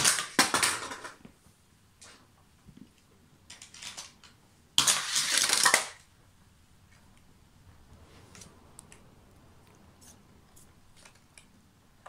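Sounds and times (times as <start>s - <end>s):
toy cars clicking: 0.0s - 1.2s, 3.5s - 6.1s
toy truck rattling clatter: 3.5s - 6.0s.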